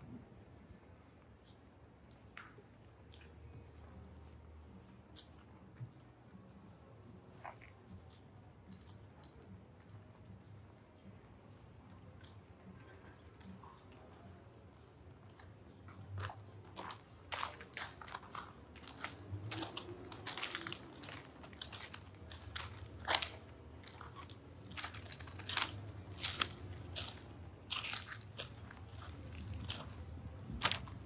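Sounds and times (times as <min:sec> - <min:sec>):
low steady hum: 0:00.0 - 0:31.0
footsteps on path: 0:16.2 - 0:31.0.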